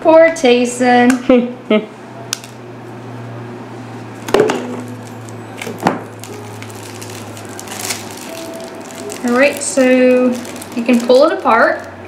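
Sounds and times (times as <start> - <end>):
steady low hum: 0.0 - 12.0
packaging clicks and rustles: 4.6 - 12.0.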